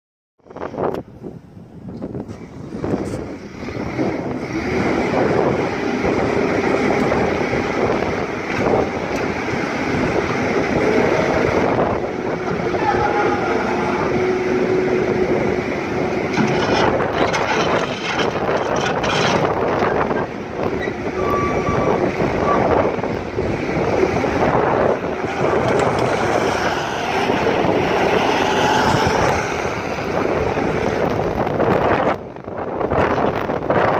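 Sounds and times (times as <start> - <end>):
loader engine running with whine: 2.1 - 33.7
thin squeal: 20.8 - 22.7.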